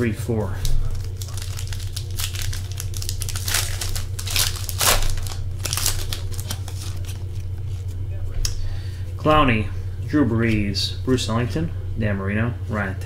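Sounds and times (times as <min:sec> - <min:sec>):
low electrical hum: 0:00.0 - 0:13.0
foil wrapper tearing and crinkling: 0:00.7 - 0:07.9.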